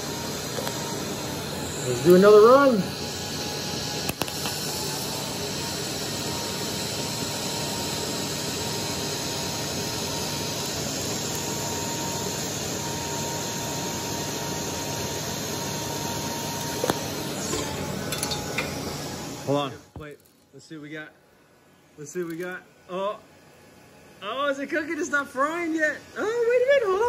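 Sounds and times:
welding arc hissing: 0.0s - 20.5s.

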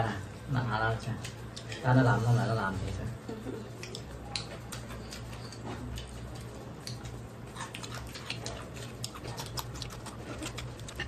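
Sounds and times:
chewing and mouth clicks: 1.2s - 1.8s, 3.7s - 11.0s.

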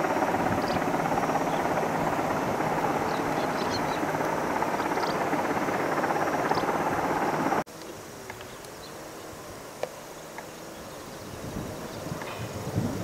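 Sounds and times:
faint wavering drone: 0.0s - 12.6s
distant helicopter rotor noise: 0.0s - 13.0s
small bird chirps: 3.0s - 4.1s, 4.7s - 5.2s.

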